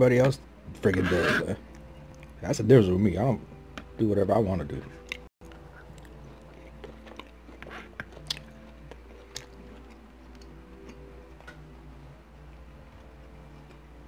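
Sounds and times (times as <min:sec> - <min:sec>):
faint steady hum: 0:00.0 - 0:14.0
wet chewing mouth clicks: 0:05.1 - 0:11.0.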